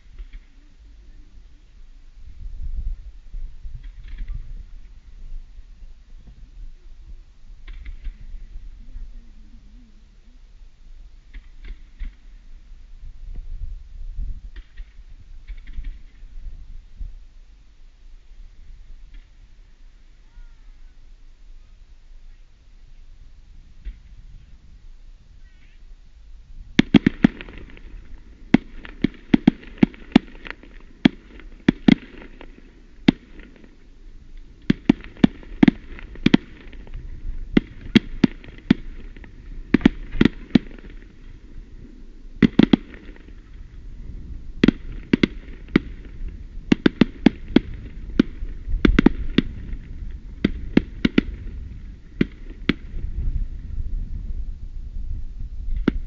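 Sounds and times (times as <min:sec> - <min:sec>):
distant fireworks bangs: 0:11.3 - 0:12.5, 0:26.8 - 0:53.4, 0:55.7 - 0:56.0
low rumble: 0:47.4 - 0:56.0.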